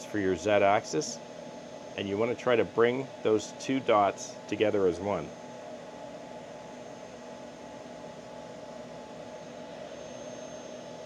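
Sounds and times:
faint high-pitched whine: 0:00.0 - 0:05.5
fan hum and hiss: 0:00.0 - 0:11.0.

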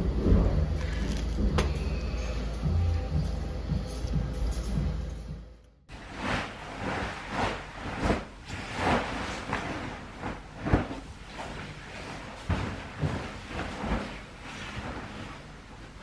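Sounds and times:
duvet rustling and swishing: 0:05.9 - 0:16.0.

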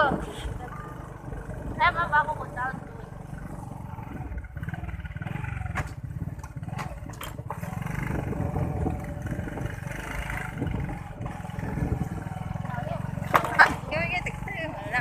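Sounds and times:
small motorcycle engine running: 0:00.0 - 0:15.0
wind rumble on microphone: 0:04.0 - 0:12.4.

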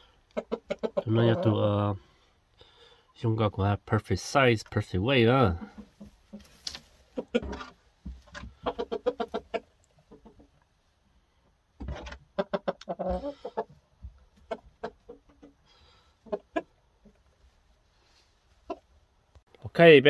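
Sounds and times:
rooster clucking: 0:00.3 - 0:01.6, 0:07.1 - 0:07.8, 0:08.4 - 0:10.5, 0:12.3 - 0:13.8, 0:14.4 - 0:15.6, 0:16.2 - 0:16.8.

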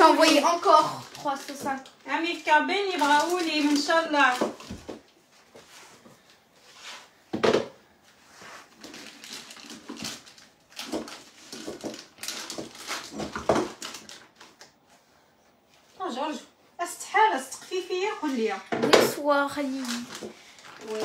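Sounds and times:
plastic bag crinkling: 0:00.0 - 0:05.0, 0:08.6 - 0:14.8, 0:19.6 - 0:21.0.

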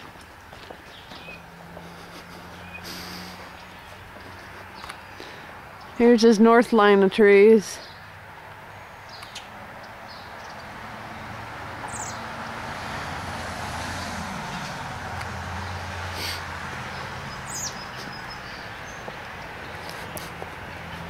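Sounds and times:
vehicle passing: 0:00.0 - 0:21.0
bird chirps: 0:00.9 - 0:01.4, 0:17.0 - 0:19.1.

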